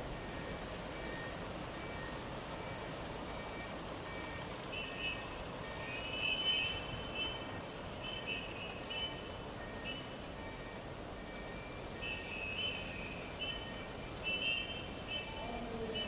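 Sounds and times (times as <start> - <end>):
bus engines and traffic hum: 0.0 - 16.0
reversing alarm beeping: 0.1 - 16.0.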